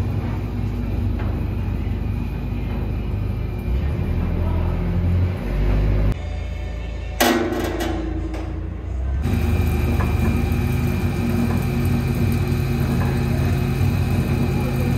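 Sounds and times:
metal clank: 0:07.2 - 0:09.0
blender motor humming: 0:09.2 - 0:14.9.

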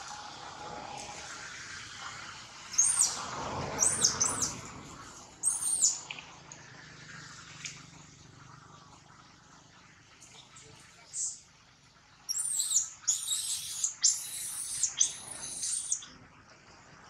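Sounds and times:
high-pitched squeaky calls: 0:03.8 - 0:04.5, 0:05.4 - 0:06.0, 0:12.3 - 0:16.0.

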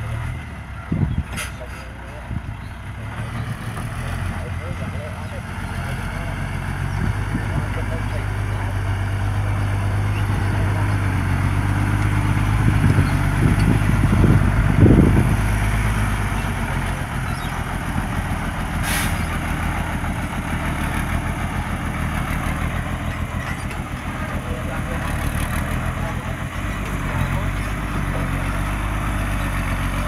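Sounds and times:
dump truck diesel engine: 0:00.0 - 0:30.0
short hiss: 0:18.8 - 0:19.2.

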